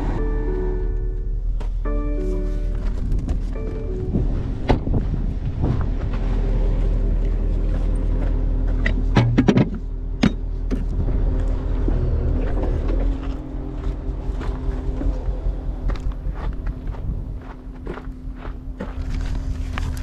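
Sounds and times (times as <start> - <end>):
diesel truck idling: 0.0 - 20.0
footsteps on gravel: 13.0 - 20.0.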